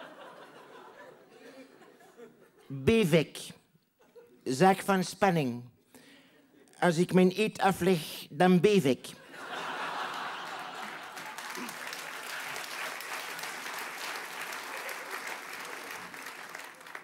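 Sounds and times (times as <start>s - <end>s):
audience applauding: 9.7s - 17.0s.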